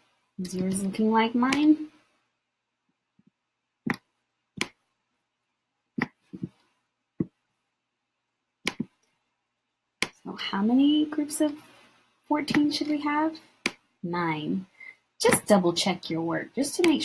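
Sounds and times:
computer mouse clicking: 0:03.9 - 0:04.8, 0:08.7 - 0:09.2, 0:16.8 - 0:17.0.

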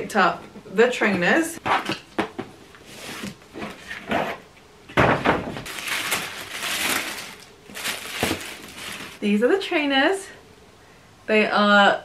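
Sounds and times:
ribbon rustling: 0:05.7 - 0:09.2
tissue paper rustling: 0:05.7 - 0:09.2.

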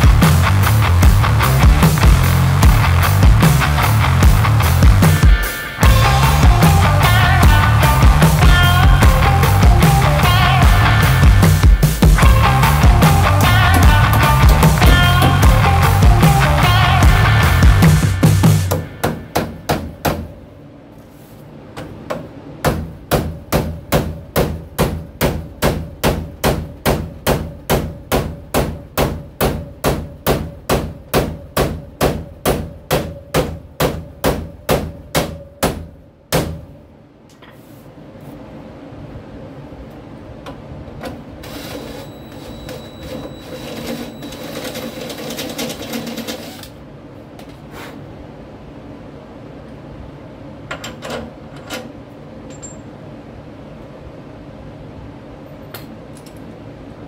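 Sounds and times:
hammer blows on metal: 0:05.0 - 0:20.4
metal parts clinking: 0:52.4 - 0:52.9.

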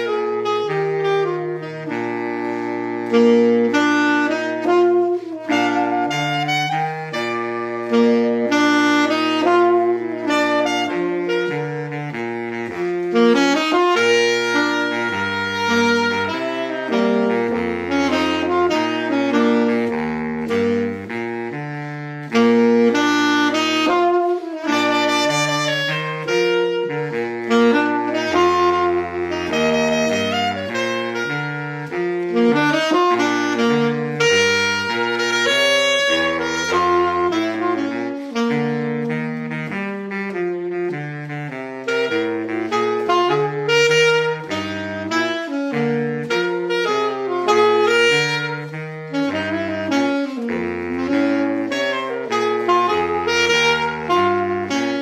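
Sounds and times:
saxophone ensemble playing: 0:00.0 - 0:55.0.

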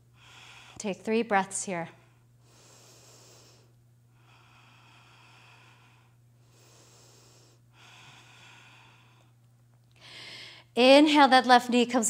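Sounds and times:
steady low hum: 0:00.0 - 0:12.0
breathing through the nose: 0:00.2 - 0:00.8, 0:02.4 - 0:09.3.

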